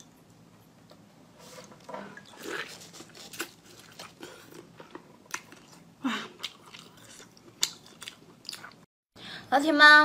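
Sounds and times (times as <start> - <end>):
biting and chewing: 2.4 - 8.9.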